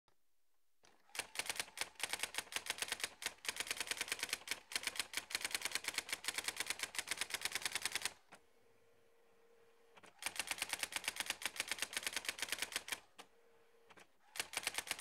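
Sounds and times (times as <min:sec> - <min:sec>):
typewriter clattering: 0:14.4 - 0:15.0.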